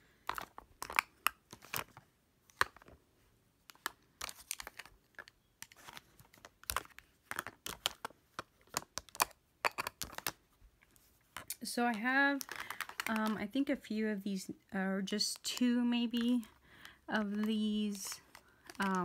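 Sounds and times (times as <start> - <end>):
plastic compacts clicking: 0.2 - 2.9, 3.6 - 10.4, 12.4 - 13.5, 15.3 - 19.0.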